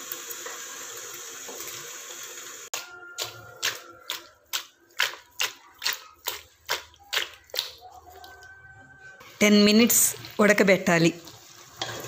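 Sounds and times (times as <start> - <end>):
steel spoon scraping steel pot: 11.5 - 12.0.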